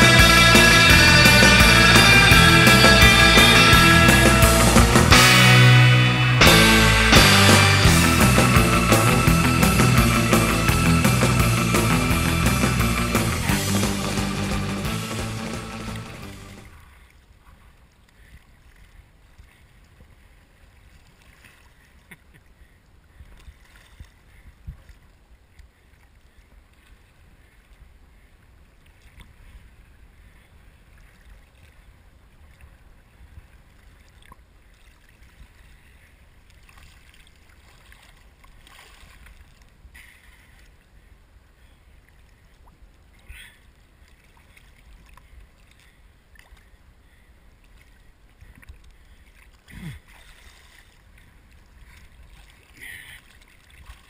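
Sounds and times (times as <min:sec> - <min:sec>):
water sloshing and splashing: 0:15.8 - 0:22.4, 0:23.1 - 0:27.8, 0:30.9 - 0:40.9, 0:42.0 - 0:46.8, 0:47.6 - 0:54.0.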